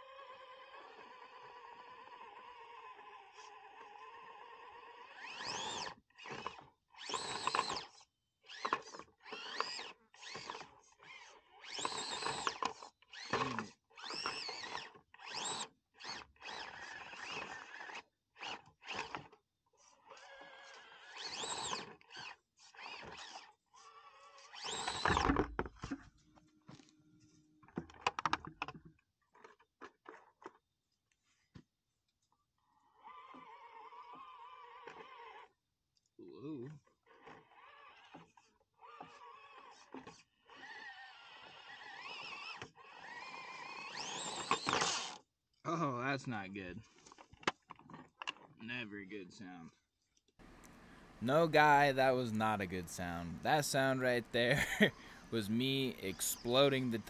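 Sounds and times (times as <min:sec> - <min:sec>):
small electric motor whining: 0:00.0 - 0:26.0, 0:33.0 - 0:35.5, 0:37.1 - 0:45.2.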